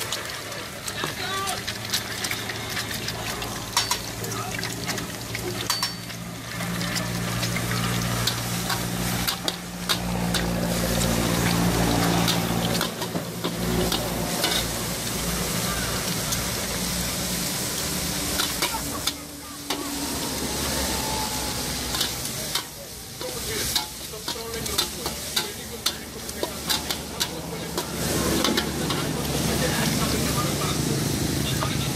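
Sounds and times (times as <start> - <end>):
food sizzling: 0.0 - 31.9
metal spatula scraping a wok: 5.6 - 16.6, 17.2 - 30.5.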